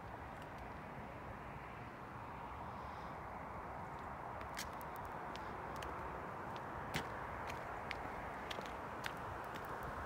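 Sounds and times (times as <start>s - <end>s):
outdoor background noise: 0.0s - 10.0s
faint footsteps: 3.9s - 10.0s.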